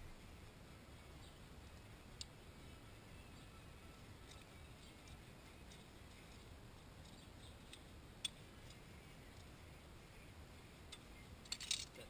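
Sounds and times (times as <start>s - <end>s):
faint metallic ticks of wire: 4.2s - 9.5s.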